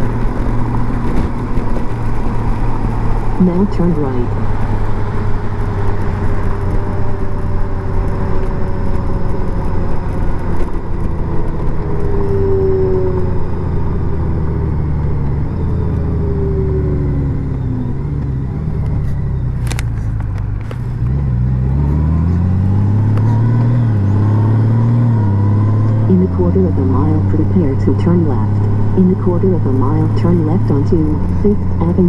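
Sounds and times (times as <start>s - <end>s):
motorcycle engine running: 0.0s - 32.0s
wind and road noise: 0.0s - 32.0s.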